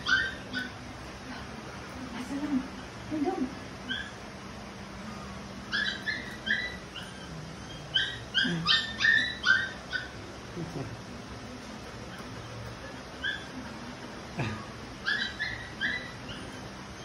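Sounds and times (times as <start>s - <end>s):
dog whimpering: 5.7s - 10.2s, 15.0s - 17.0s.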